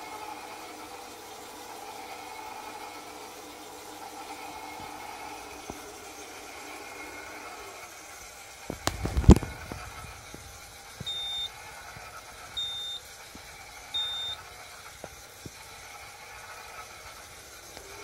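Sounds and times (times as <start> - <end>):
faint steady hum: 0.0 - 18.0
short high electronic beeps: 11.1 - 11.6, 12.6 - 13.1, 14.0 - 14.4.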